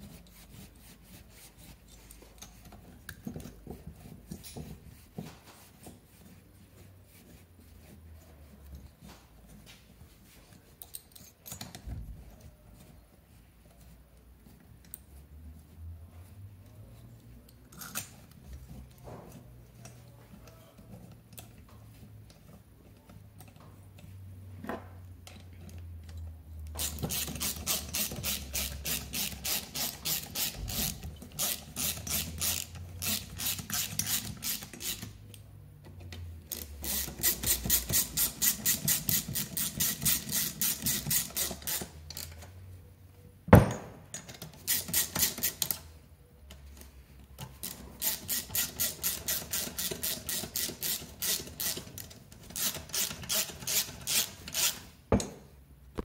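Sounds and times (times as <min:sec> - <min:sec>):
ratchet wrench clicking: 0:26.7 - 0:35.2, 0:36.5 - 0:42.4, 0:44.6 - 0:45.8, 0:47.6 - 0:54.8.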